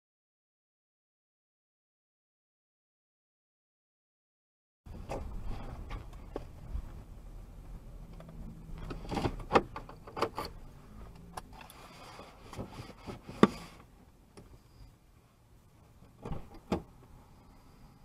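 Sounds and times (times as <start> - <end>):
low engine hum: 4.9 - 12.0.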